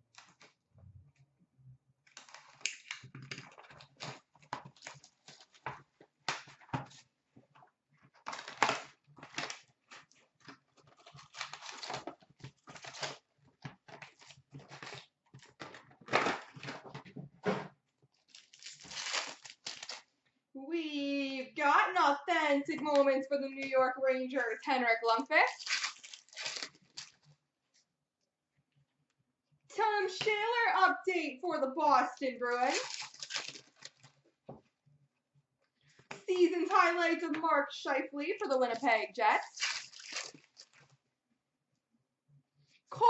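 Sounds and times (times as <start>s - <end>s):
foil packs rustling and crinkling: 2.2s - 7.0s, 8.2s - 17.0s, 18.2s - 20.1s, 25.5s - 27.3s, 32.6s - 34.2s, 39.4s - 40.9s
cardboard box torn open: 11.0s - 13.3s, 18.3s - 20.1s, 25.6s - 27.2s, 32.7s - 34.1s, 39.6s - 40.8s.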